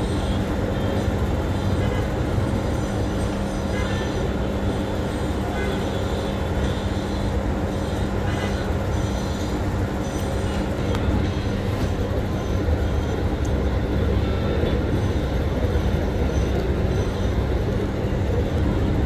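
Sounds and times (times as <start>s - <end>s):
constant hum: 0.0s - 19.0s
vehicles running rumble: 0.0s - 19.0s.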